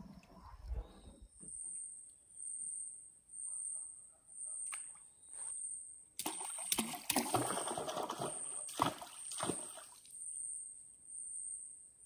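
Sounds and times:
water splashing at a canoe: 6.2 - 10.1.

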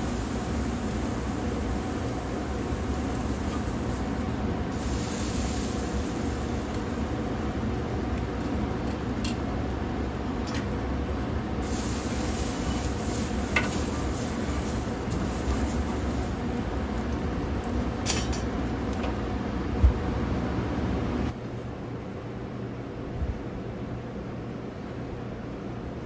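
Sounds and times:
ribs sizzling on grill: 0.0 - 19.0.

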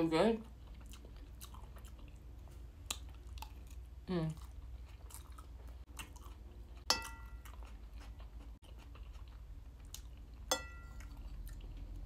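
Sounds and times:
soft chewing: 0.4 - 12.0
spoon clinking on ceramic bowl: 6.9 - 7.5, 10.5 - 11.1.

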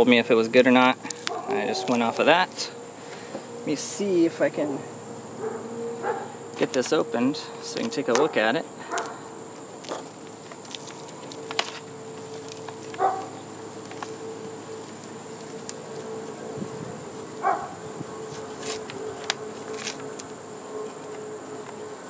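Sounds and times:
steady background buzz: 0.0 - 22.0
plastic wrap crinkling: 8.9 - 17.6, 18.2 - 20.4.

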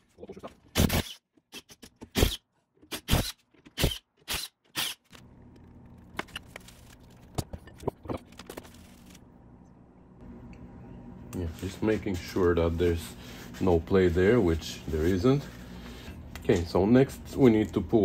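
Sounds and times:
low steady hum: 5.1 - 18.0.

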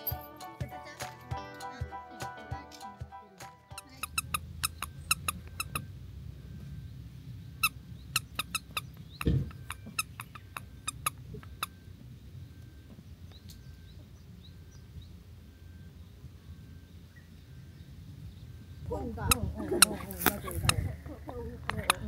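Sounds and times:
low steady hum: 3.8 - 22.0.

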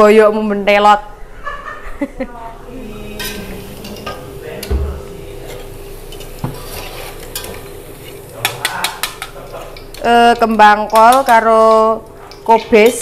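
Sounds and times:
vegetables sizzling: 2.7 - 13.0
metal spatula scraping wok: 5.4 - 8.6.

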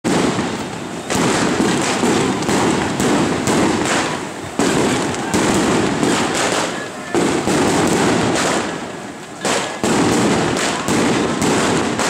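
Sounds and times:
firecrackers crackling: 0.0 - 12.0.

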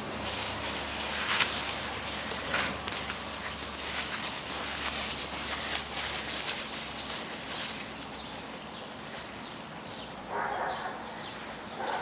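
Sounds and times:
dog paws crunching through leaves: 0.0 - 9.9.

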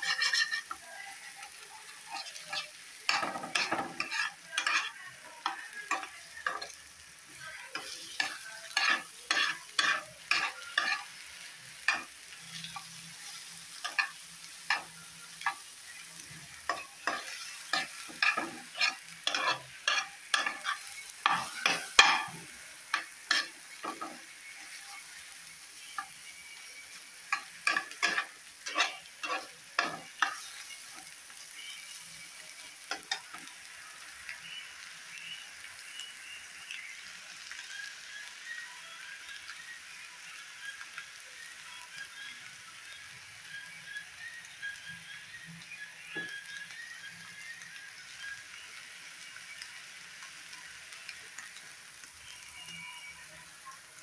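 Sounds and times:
wooden spatula scraping a pan: 0.0 - 0.8, 2.1 - 5.0, 8.2 - 11.1, 16.7 - 22.3, 27.7 - 30.1
faint sizzle of frying: 0.0 - 54.0.

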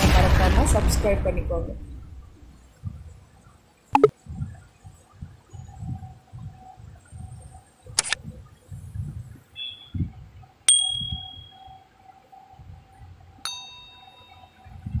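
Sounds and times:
sharp metallic dings: 10.7 - 11.8, 13.4 - 14.7.

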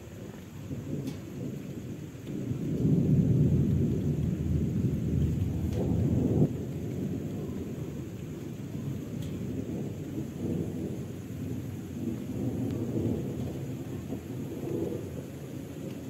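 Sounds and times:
rolling thunder: 0.0 - 16.0.

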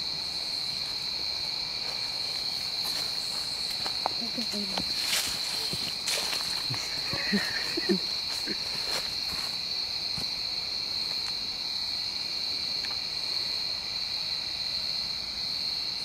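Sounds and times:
night insects chorus: 0.0 - 16.0.

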